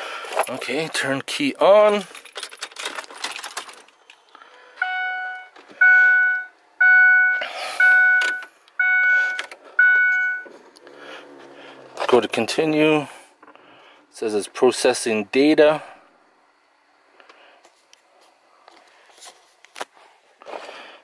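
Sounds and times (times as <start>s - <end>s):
dashboard warning chime: 4.6s - 10.6s.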